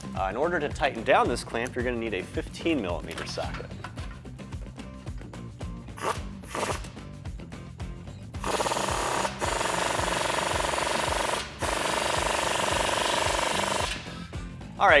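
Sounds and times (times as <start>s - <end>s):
faint background music: 0.0s - 15.0s
impact wrench hammering: 8.4s - 14.1s.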